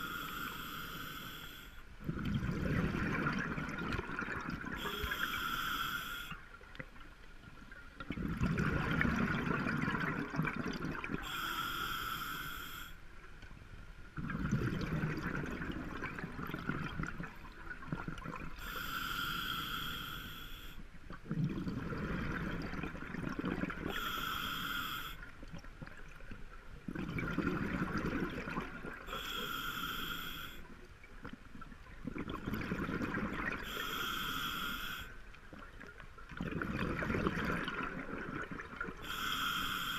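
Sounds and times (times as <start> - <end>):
hissing regulator inhale: 0.0 - 1.8, 4.8 - 6.4, 11.2 - 13.0, 18.6 - 20.8, 23.9 - 25.3, 29.1 - 30.7, 33.6 - 35.2, 39.0 - 39.9
gurgle of exhaled bubbles: 2.0 - 5.2, 8.0 - 11.3, 14.2 - 18.7, 21.1 - 24.1, 25.5 - 29.2, 31.2 - 33.8, 35.8 - 39.2.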